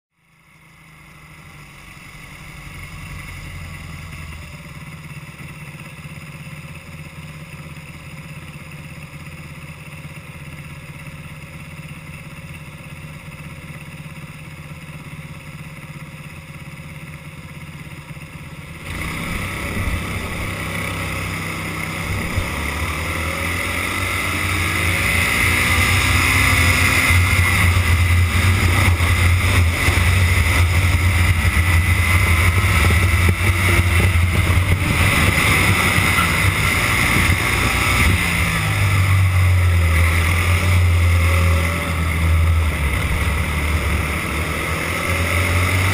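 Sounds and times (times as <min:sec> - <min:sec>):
racing kart engine revving: 0:18.7 - 0:45.9.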